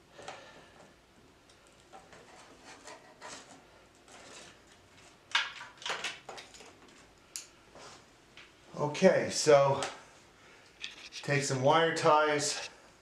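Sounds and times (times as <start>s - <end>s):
cables and plastic parts rustling: 0.1s - 7.6s.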